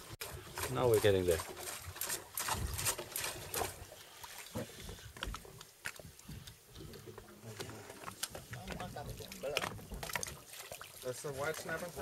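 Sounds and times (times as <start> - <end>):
sea water splashing against boat: 0.0 - 5.0, 7.6 - 12.0.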